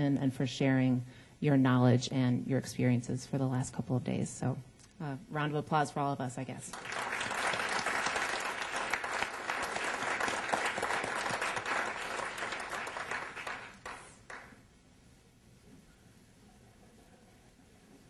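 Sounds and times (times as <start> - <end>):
audience applauding: 6.7 - 14.6.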